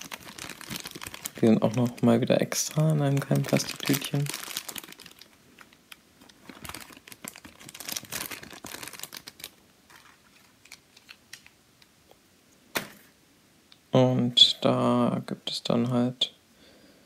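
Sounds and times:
plastic bag crinkling: 0.0 - 11.6.

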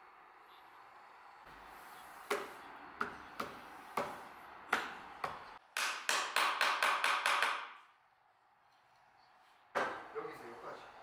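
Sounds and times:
hammer tapping wood: 2.3 - 7.8.

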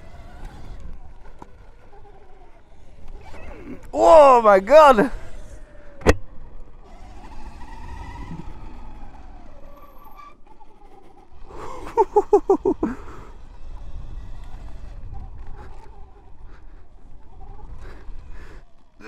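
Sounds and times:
electric motor whine: 0.0 - 4.0, 5.1 - 12.0, 12.7 - 19.0
low rumble of dirt bike: 0.0 - 19.0
rider grunting: 1.9 - 5.9, 11.4 - 14.2, 14.9 - 19.0.

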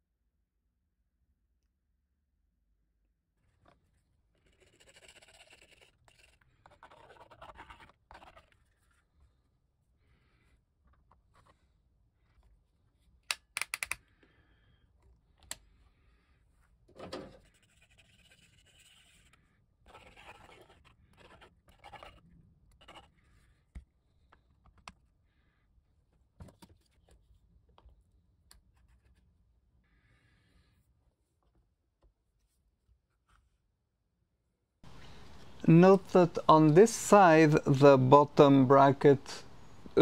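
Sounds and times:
scratching and rubbing plastic: 3.4 - 13.2, 17.2 - 24.5
plastic parts clicking: 13.3 - 14.0.

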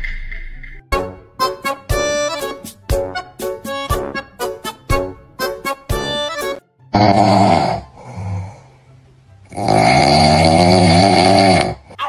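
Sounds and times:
loud snoring: 6.9 - 8.7, 9.5 - 12.0
quiet breath: 7.9 - 9.0.

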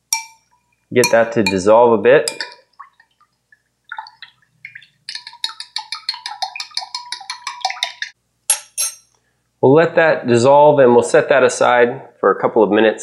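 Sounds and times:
metal spoon clinking against glass: 0.1 - 1.7, 2.3 - 2.6, 5.1 - 9.1.

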